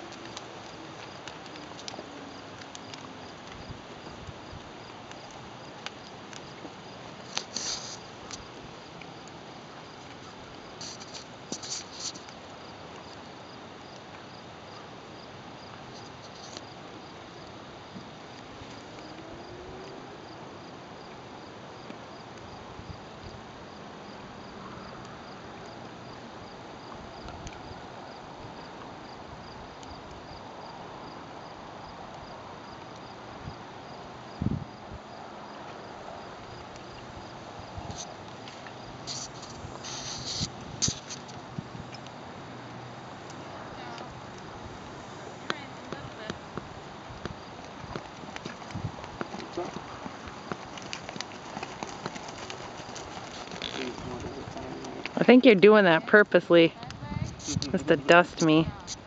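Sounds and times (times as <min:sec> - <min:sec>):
background hiss: 0:00.0 - 0:59.0
insects chirping: 0:00.0 - 0:59.0
low hiss: 0:36.7 - 0:47.6, 0:53.4 - 0:59.0.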